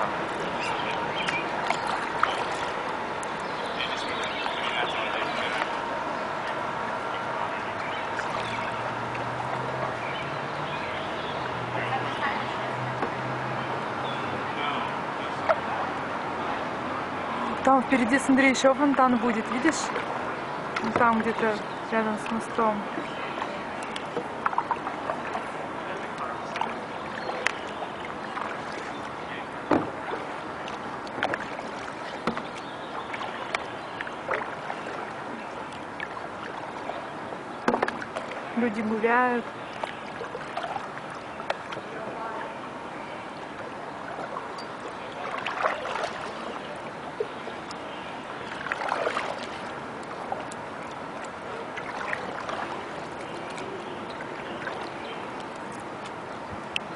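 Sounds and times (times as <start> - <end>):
sharp splashes and knocks: 0.0 - 3.5, 23.0 - 29.0, 29.7 - 38.5, 39.7 - 42.0, 43.6 - 46.6, 48.4 - 56.9
paddle strokes splashing: 0.0 - 18.2, 18.8 - 56.9
water wash: 0.0 - 56.9
wind: 0.0 - 56.9.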